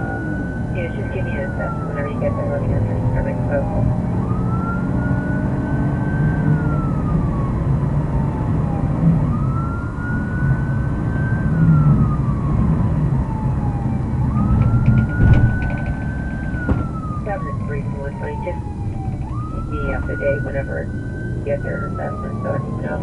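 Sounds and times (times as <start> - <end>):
car engine and road noise: 0.0 - 23.0
police siren wailing: 0.0 - 23.0
clatter of knocks: 14.4 - 17.1.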